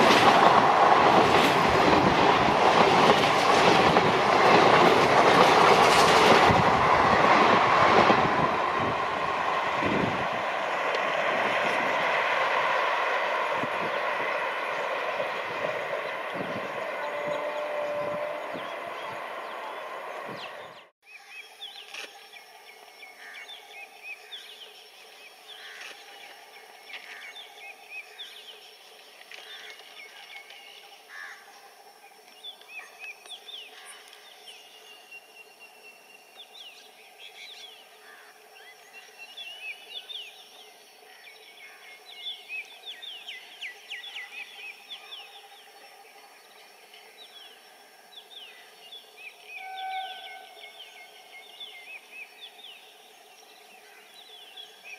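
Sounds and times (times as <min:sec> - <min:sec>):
passing train: 0:00.0 - 0:21.0, 0:22.4 - 0:54.9
songbirds chirping: 0:12.8 - 0:31.1, 0:32.0 - 0:54.9.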